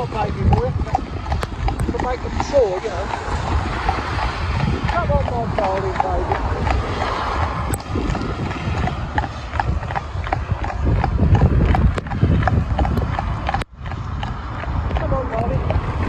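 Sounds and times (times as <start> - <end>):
horse hooves clip-clopping on tarmac: 0.0 - 16.0
low rumble: 0.0 - 16.0.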